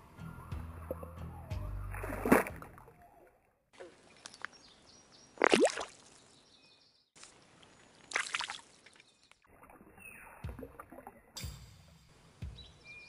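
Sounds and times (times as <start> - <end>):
pond water splashing: 0.8 - 6.4, 7.2 - 11.5.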